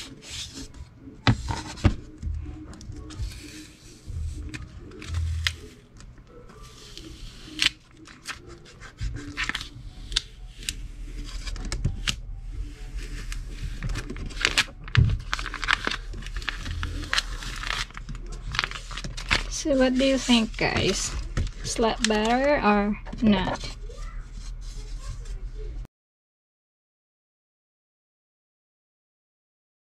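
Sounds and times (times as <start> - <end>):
tape rubbing scratchily: 1.4 - 5.9, 6.5 - 22.4
tape peeling crackly: 6.7 - 12.2, 13.0 - 19.5.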